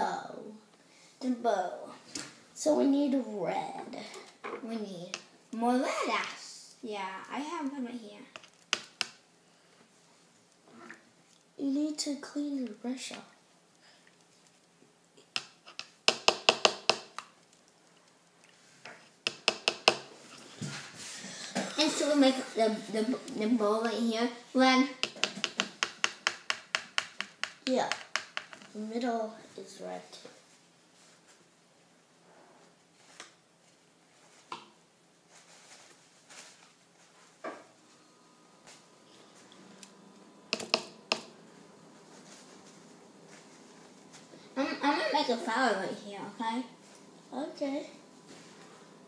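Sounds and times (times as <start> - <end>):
paintbrush tapping water cup: 15.4 - 17.3, 19.3 - 20.1, 24.9 - 28.7, 40.5 - 41.4.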